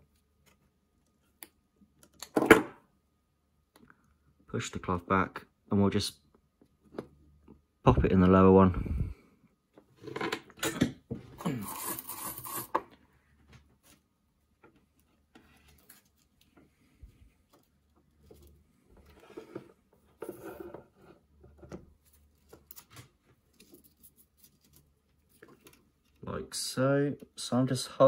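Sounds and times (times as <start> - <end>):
rustling and scraping: 11.2 - 26.2.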